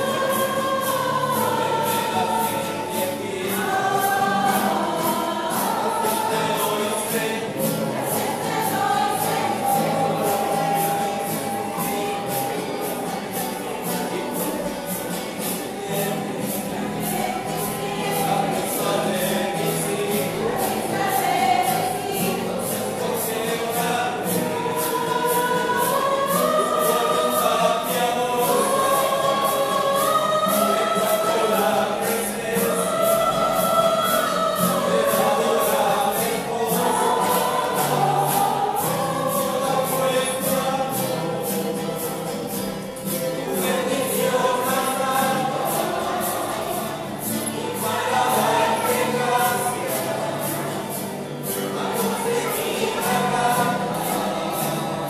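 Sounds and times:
choir singing: 0.0s - 55.0s.

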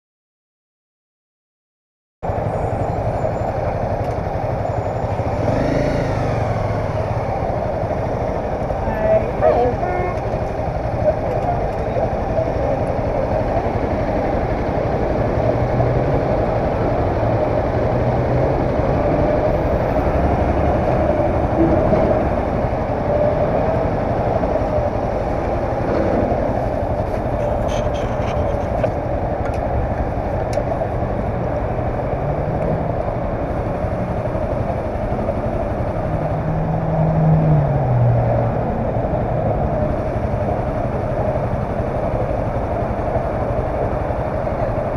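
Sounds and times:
motorcycle engine revving: 5.1s - 8.8s.

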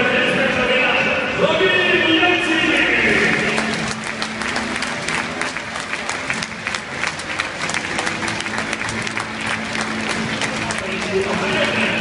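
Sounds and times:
stadium crowd applauding: 3.1s - 12.0s.

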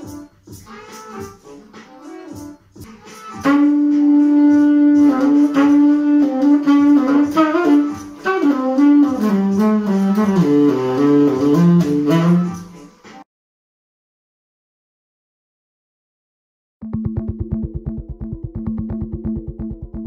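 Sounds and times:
looped backing track: 0.0s - 13.2s
saxophone jazz solo: 2.9s - 12.9s.

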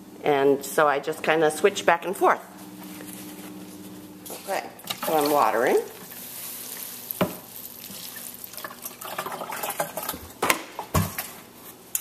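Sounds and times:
water sprinkling onto paper: 4.9s - 9.9s.

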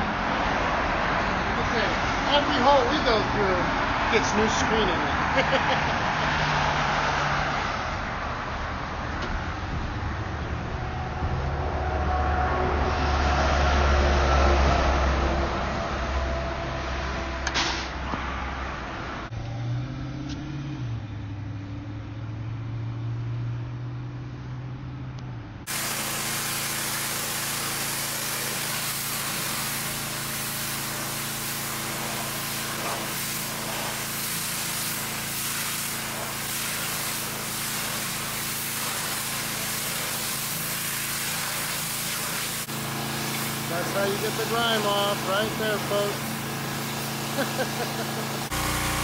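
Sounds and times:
pressure washer spraying water: 25.7s - 49.0s.

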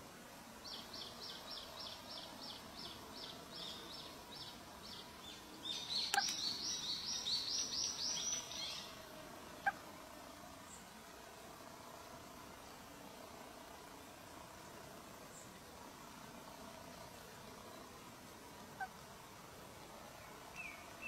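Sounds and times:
nestlings begging chirps: 0.6s - 9.0s.

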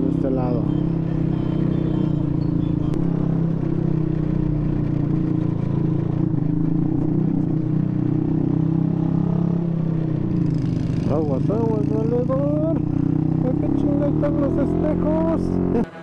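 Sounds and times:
motorcycle engine running: 0.0s - 16.0s
road and wind noise: 0.0s - 16.0s.

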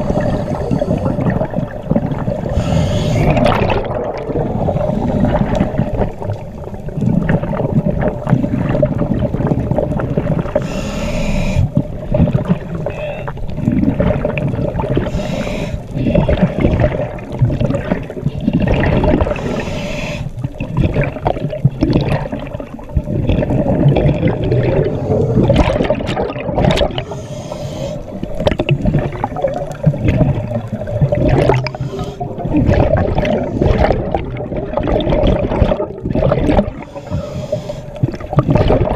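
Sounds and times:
regulator bubbles gurgling: 0.0s - 38.9s
crackle of small clicks: 5.4s - 10.6s, 28.2s - 31.8s.

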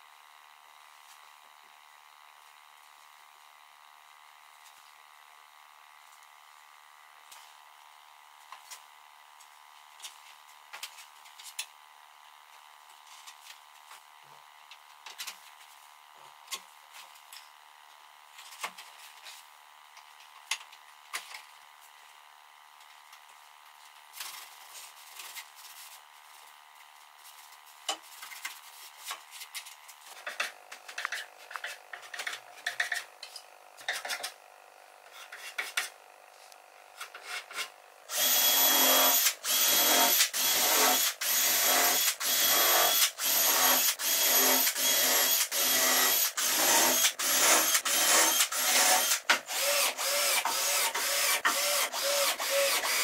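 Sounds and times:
cordless drill driving screws: 38.1s - 53.0s.

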